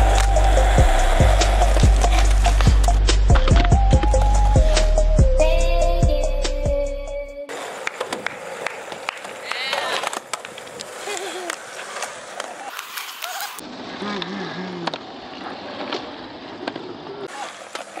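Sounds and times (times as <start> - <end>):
skateboard wheels rolling on concrete: 0.0 - 5.1, 7.5 - 18.0
skateboard clicks and knocks: 7.5 - 18.0.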